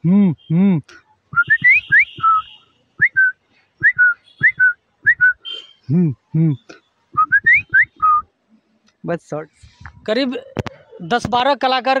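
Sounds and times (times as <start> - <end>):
deep vocal tones: 0.0 - 0.9, 5.9 - 6.8
man whistling a tune: 1.3 - 5.5, 7.2 - 8.3.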